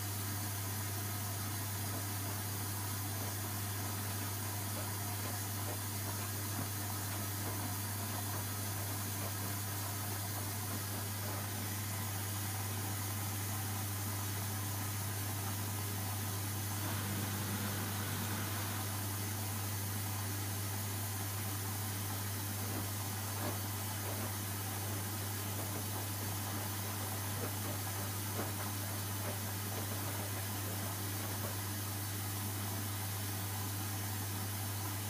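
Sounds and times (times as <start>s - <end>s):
washing machine drum turning: 16.2s - 19.4s.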